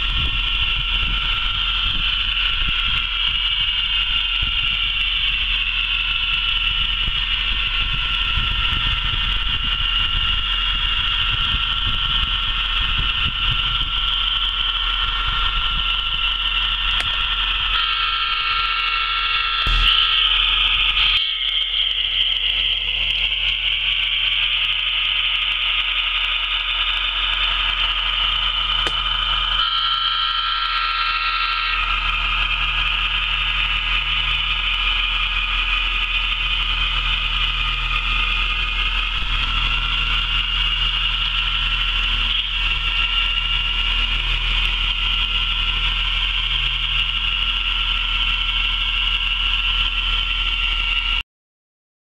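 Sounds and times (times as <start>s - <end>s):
model train running: 0.0s - 51.2s
tone of several pitches: 19.6s - 21.5s.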